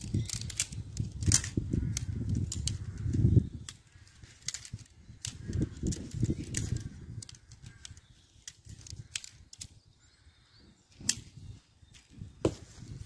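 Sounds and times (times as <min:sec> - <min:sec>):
tent pole sections clicking: 0:00.0 - 0:09.8, 0:10.9 - 0:13.0.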